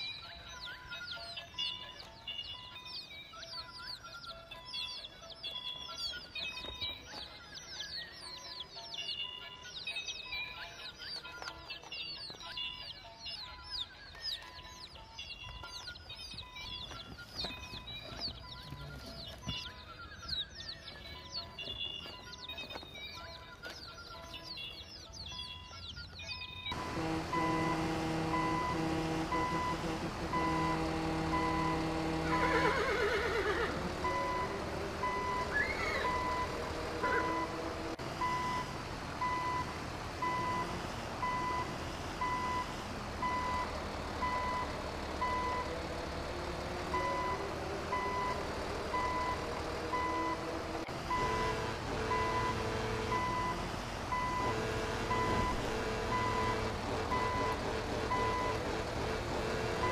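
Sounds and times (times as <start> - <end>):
held musical notes: 0.0 - 59.9
truck reversing alarm beeping: 0.0 - 59.9
horse whinnying: 32.2 - 34.2, 35.1 - 37.6.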